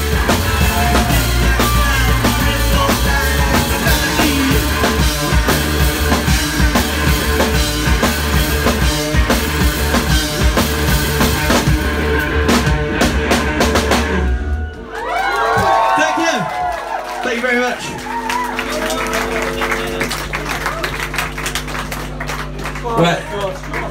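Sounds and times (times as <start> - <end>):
drum kit: 0.0 - 14.7
live rock band playing: 0.0 - 14.8.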